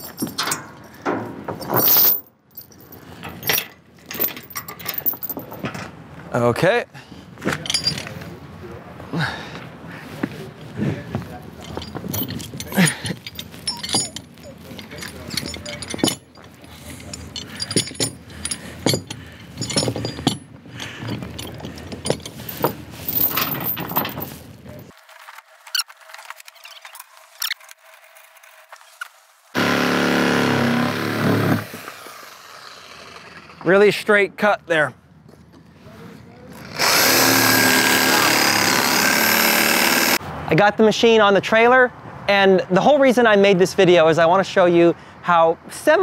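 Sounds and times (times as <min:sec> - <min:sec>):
chain rattling and clinking: 0:00.0 - 0:05.8, 0:07.6 - 0:08.2, 0:11.5 - 0:24.9
metal knocks: 0:00.1 - 0:02.0.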